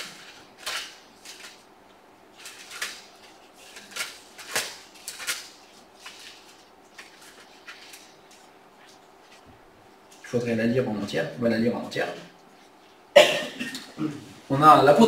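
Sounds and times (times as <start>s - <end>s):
paper pages rustling: 0.0s - 1.7s, 2.3s - 10.4s.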